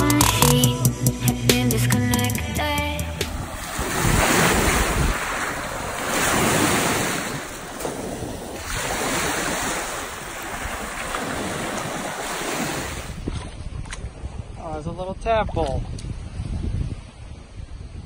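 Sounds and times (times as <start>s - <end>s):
wind buffeting microphone: 3.2s - 18.0s
waves washing over pebbles: 3.4s - 13.3s.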